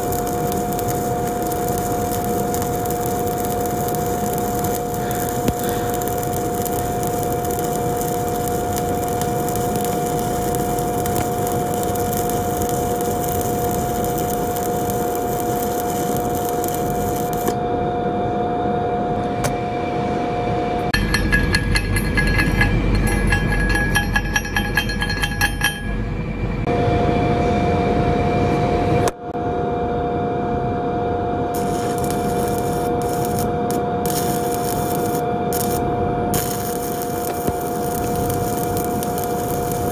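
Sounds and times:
welding arc crackling: 0.0 - 17.6, 21.0 - 25.8, 31.5 - 39.9
steady hum: 0.0 - 26.8, 29.0 - 39.9
rhythmic ticking: 21.0 - 26.0.

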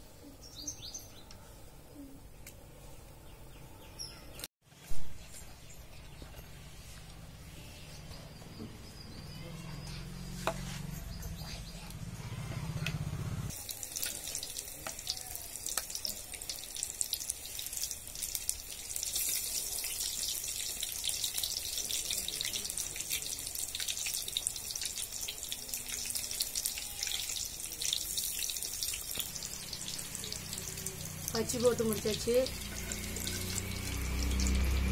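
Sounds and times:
batter deep-frying in oil: 13.5 - 34.9.

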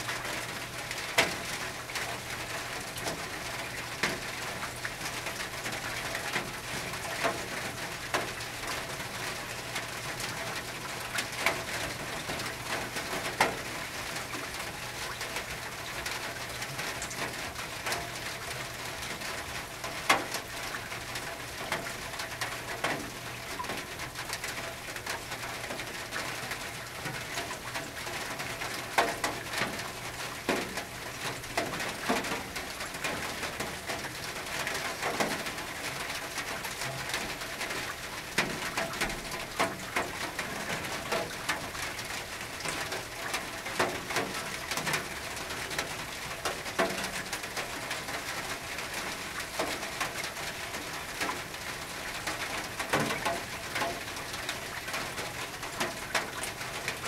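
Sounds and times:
rain on a tin roof: 0.0 - 57.0.

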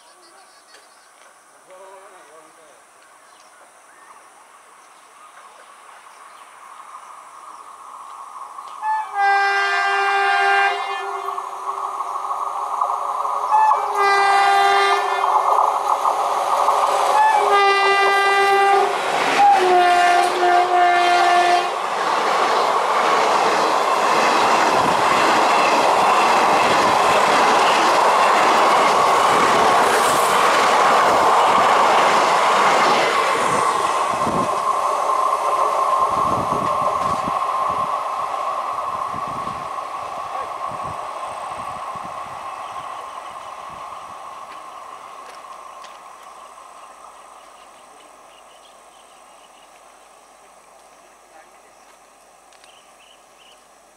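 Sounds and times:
train coaches rumbling past: 1.2 - 53.9
locomotive air horn blasts: 8.8 - 11.4, 13.5 - 15.2, 17.2 - 21.8.

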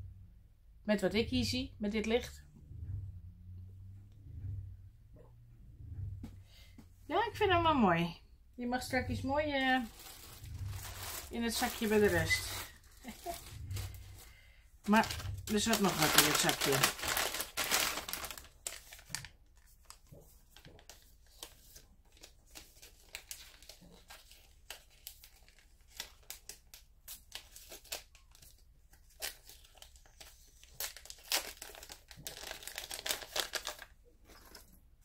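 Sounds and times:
packaging crinkling and rustling: 9.6 - 34.8.

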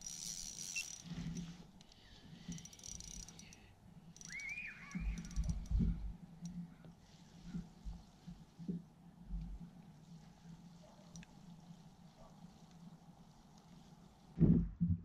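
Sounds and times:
fishing reel ticking clicks: 0.0 - 6.6.

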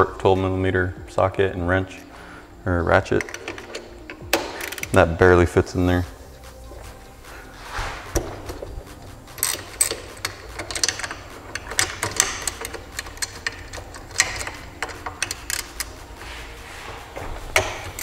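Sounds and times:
hand ratchet clicking: 3.1 - 5.1, 8.1 - 16.2, 17.4 - 18.0.

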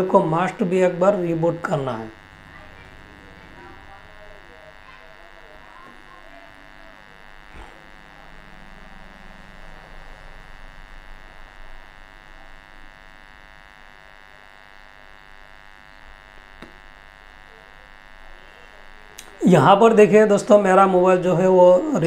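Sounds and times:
electrical buzz: 0.0 - 22.0.

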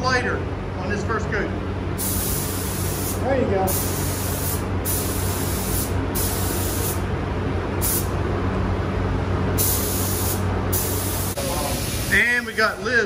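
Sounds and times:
steady low hum: 0.0 - 13.0
spray gun hissing: 2.0 - 7.0, 7.8 - 8.1, 9.6 - 12.7.

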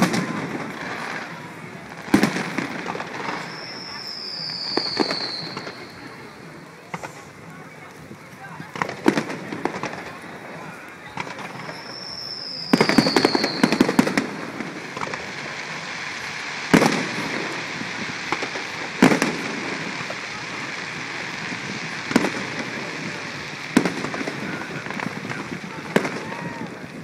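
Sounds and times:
crackling firework reports: 0.0 - 27.0
firework whistle falling: 3.2 - 6.0, 11.3 - 14.3.

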